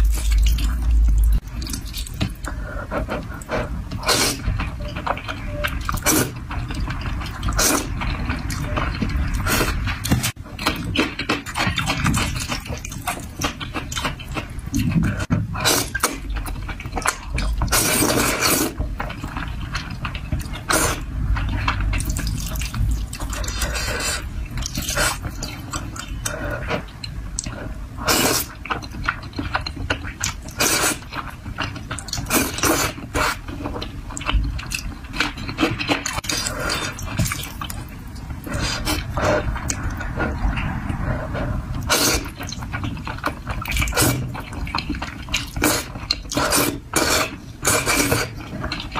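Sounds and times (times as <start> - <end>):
noodle slurps: 1.7 - 4.5, 17.7 - 18.8, 40.7 - 42.6, 45.3 - 48.4.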